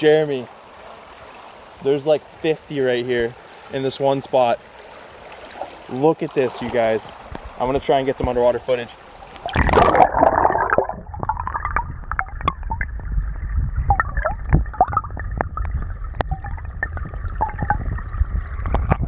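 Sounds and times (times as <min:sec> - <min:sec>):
water churning: 0:00.0 - 0:19.0
muffled underwater current rumble: 0:09.3 - 0:19.0
underwater clicks and taps: 0:11.2 - 0:13.1, 0:13.9 - 0:18.0, 0:18.6 - 0:19.0.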